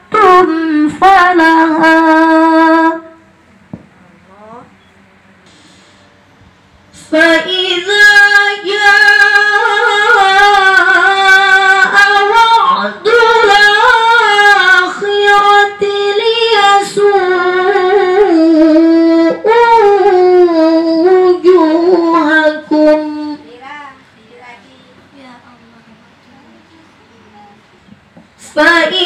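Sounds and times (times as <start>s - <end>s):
woman chanting into microphone: 7.0s - 26.7s, 28.4s - 29.0s.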